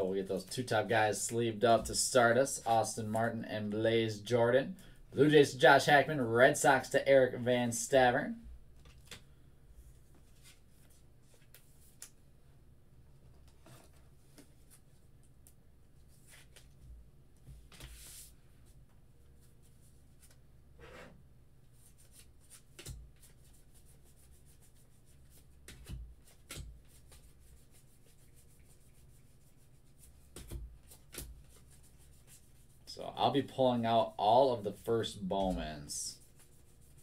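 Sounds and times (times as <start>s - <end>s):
low steady hum: 0.0s - 37.0s
cards rustling and ticking: 21.8s - 37.0s.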